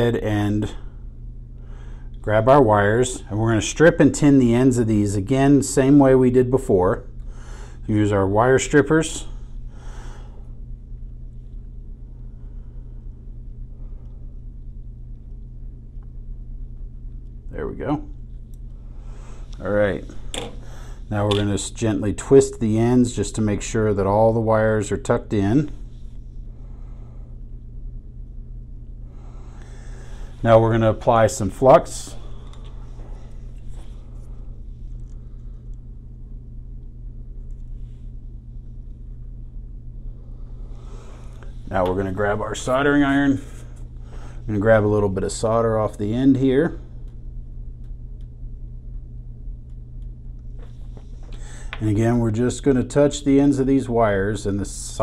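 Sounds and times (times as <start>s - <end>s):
low background hum: 0.0s - 55.0s.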